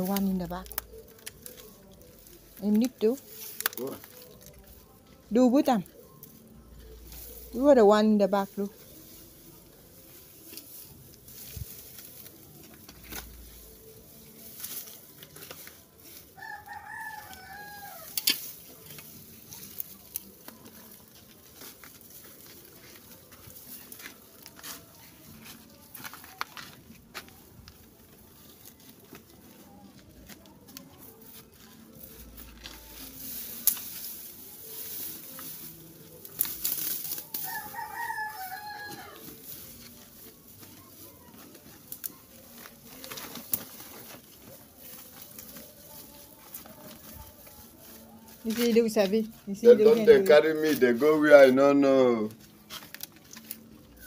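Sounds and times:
dry grass being handled: 0:00.0 - 0:54.0
rooster crowing: 0:16.4 - 0:18.3, 0:37.3 - 0:39.3.

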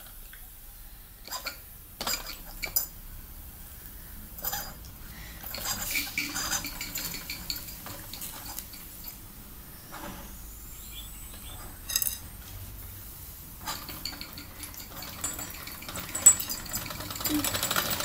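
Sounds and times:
model steam engine metallic clatter: 0:01.2 - 0:03.0, 0:05.4 - 0:09.2, 0:13.6 - 0:18.0.

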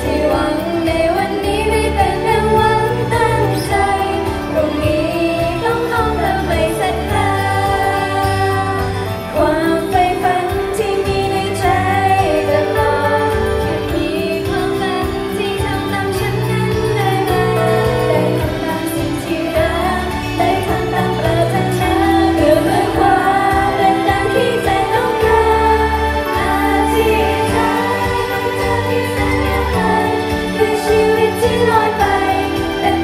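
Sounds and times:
pop song through a pa: 0:00.0 - 0:33.0
women singing into microphones: 0:00.0 - 0:33.0.

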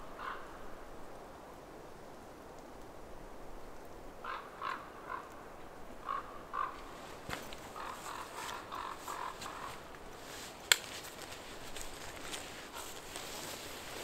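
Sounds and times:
crow cawing: 0:00.1 - 0:00.6, 0:04.2 - 0:05.3, 0:06.0 - 0:06.9, 0:07.7 - 0:09.9.

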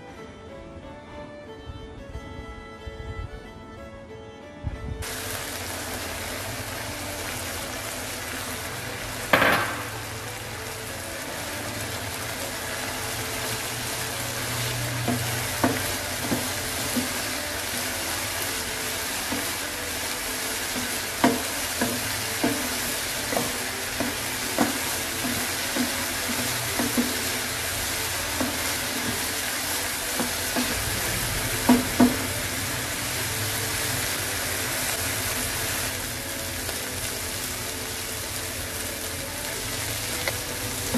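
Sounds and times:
corn sizzling in frying pan: 0:05.0 - 0:40.9
spatula knocking against pan: 0:15.1 - 0:17.2, 0:20.8 - 0:27.5, 0:31.6 - 0:32.3.

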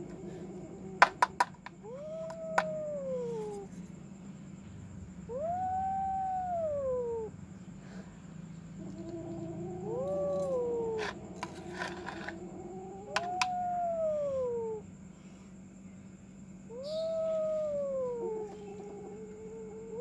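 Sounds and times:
kitten meowing: 0:01.8 - 0:03.7.

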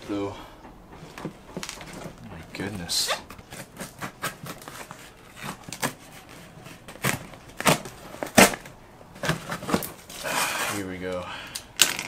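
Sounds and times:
knife cutting tape and cardboard: 0:03.5 - 0:08.7.

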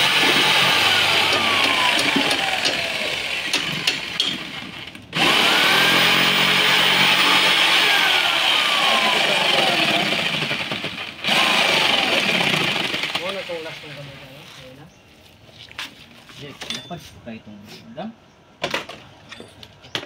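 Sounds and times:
jigsaw cutting wood: 0:00.0 - 0:13.8.

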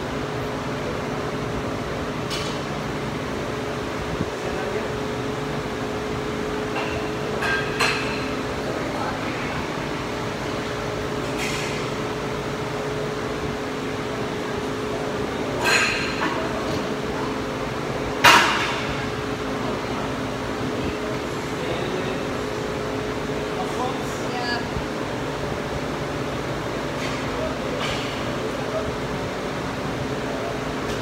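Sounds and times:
ventilation hum: 0:00.0 - 0:31.0.

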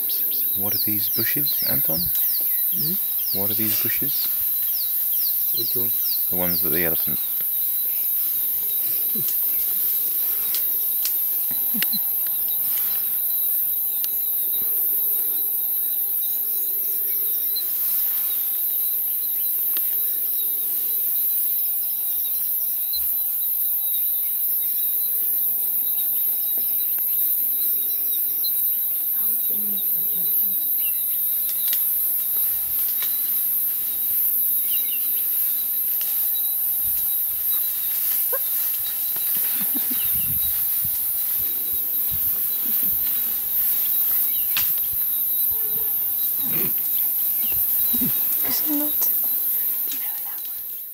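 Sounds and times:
bird chirps: 0:00.0 - 0:07.3
high-pitched insect buzz: 0:00.0 - 0:50.9.

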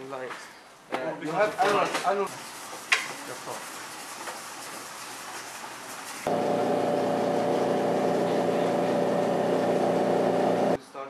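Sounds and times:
polishing machine motor humming: 0:06.3 - 0:10.8.

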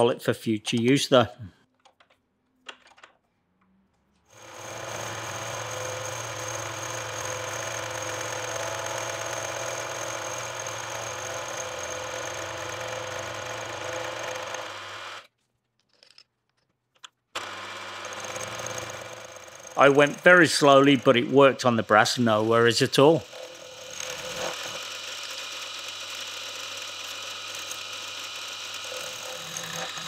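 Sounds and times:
milling machine whining: 0:04.4 - 0:15.2, 0:17.4 - 0:30.0.

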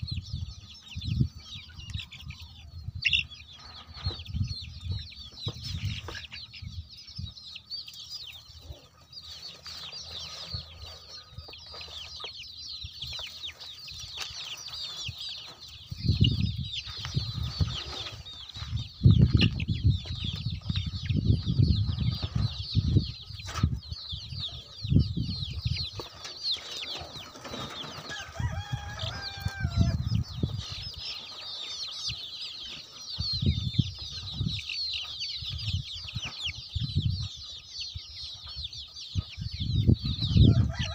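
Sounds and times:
chickens clucking: 0:00.0 - 0:40.9
chicks peeping: 0:00.0 - 0:40.9
long pitched chicken call: 0:27.8 - 0:30.4, 0:40.3 - 0:40.9.

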